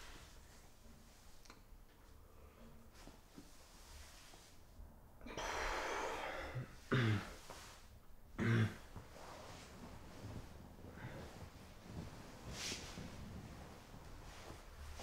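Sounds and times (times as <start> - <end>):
man breathing out heavily: 5.2 - 6.8
man coughing: 6.9 - 7.4, 8.4 - 8.9.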